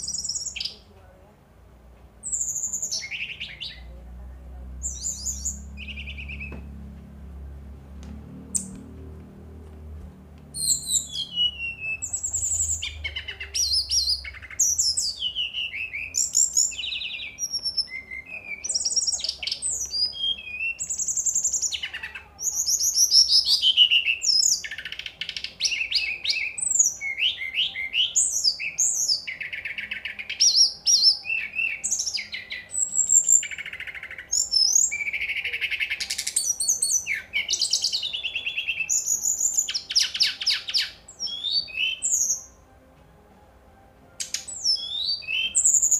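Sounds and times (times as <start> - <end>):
bird singing whistled phrases and trills: 0.0 - 0.9, 2.2 - 3.9, 4.8 - 6.7, 10.6 - 42.6, 44.2 - 45.9.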